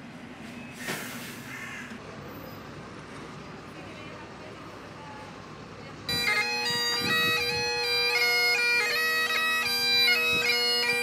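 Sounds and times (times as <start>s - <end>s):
faint street noise: 0.0s - 11.0s
bagpipe drones and chanter melody: 6.1s - 11.0s.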